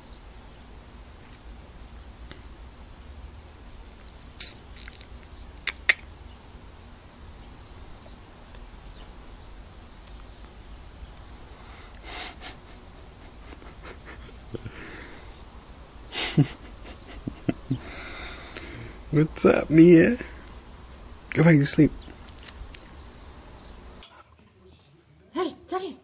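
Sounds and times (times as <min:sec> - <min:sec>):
puppy squeaking: 0:05.7 - 0:06.1
puppy sniffing: 0:11.6 - 0:15.3, 0:16.1 - 0:19.1.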